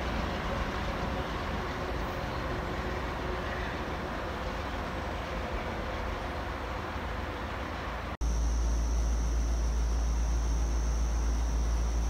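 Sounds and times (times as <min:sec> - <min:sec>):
passing train rumble: 0:00.0 - 0:08.2
high-pitched whine: 0:08.2 - 0:12.0.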